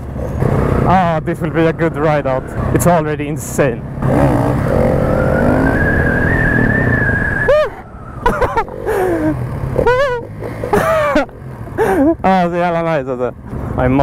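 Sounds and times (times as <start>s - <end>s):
motorcycle engine revving: 0.0s - 1.6s, 3.9s - 12.1s.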